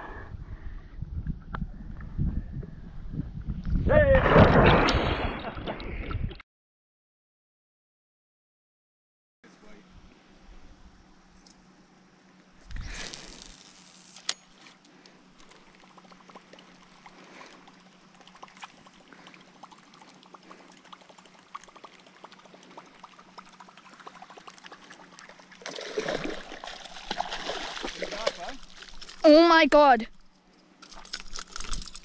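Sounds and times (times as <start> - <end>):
fish splashing at surface: 15.6 - 29.2.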